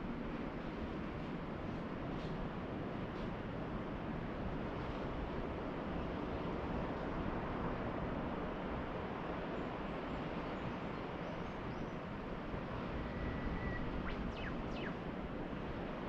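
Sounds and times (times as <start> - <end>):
distant ocean surf: 0.0 - 16.0
faint high bird chirps: 13.0 - 15.0.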